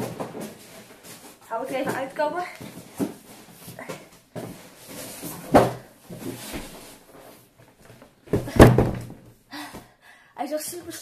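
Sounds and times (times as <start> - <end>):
loud thumps of box: 8.3 - 9.3.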